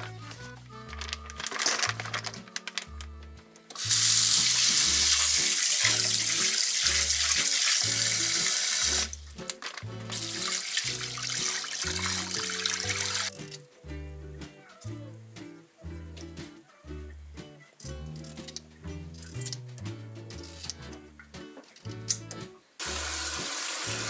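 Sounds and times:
background music with steady beat: 0.0 - 24.0
fish rubbed under running water: 3.8 - 9.1.

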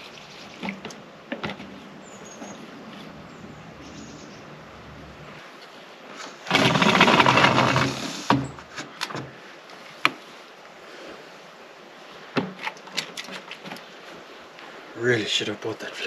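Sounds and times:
plastic pipe scraping grind: 6.2 - 8.9.

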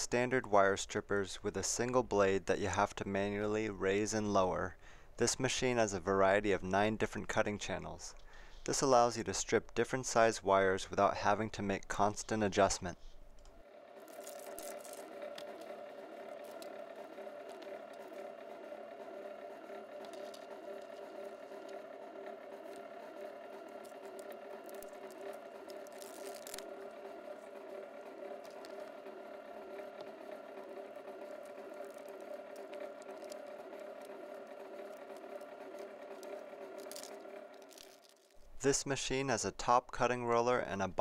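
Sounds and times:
wire clicking and rattling in rollers: 10.0 - 38.9
electric motor whining: 13.4 - 38.6.

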